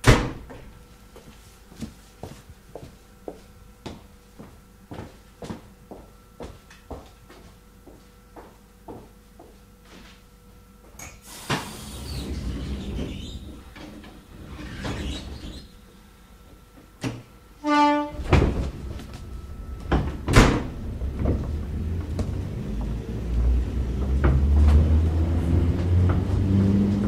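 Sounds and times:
train low rumble: 0:00.0 - 0:27.0.

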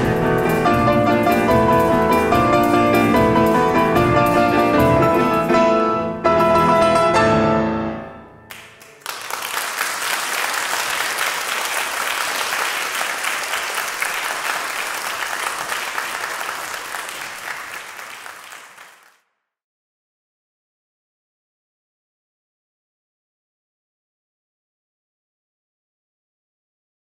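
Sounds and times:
audience applause: 0:08.5 - 0:19.2.

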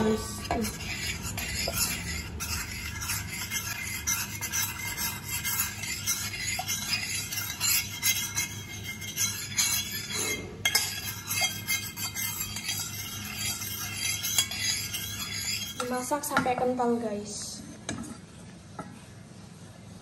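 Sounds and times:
metal spoon scraping saucepan: 0:00.0 - 0:16.8.

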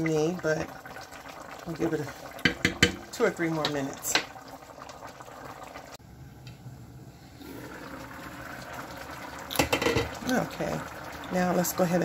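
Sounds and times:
broth bubbling in a pot: 0:00.0 - 0:06.1, 0:07.1 - 0:12.0.

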